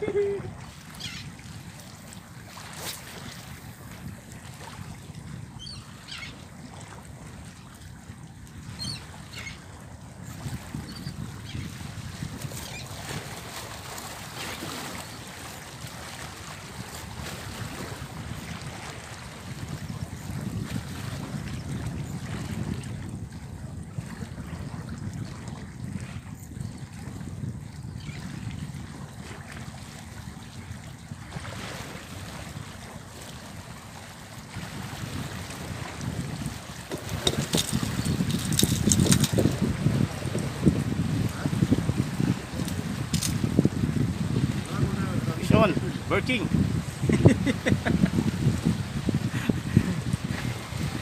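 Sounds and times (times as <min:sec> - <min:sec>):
wind buffeting microphone: 0:00.0 - 0:51.0
waves washing against rocks: 0:34.4 - 0:46.6.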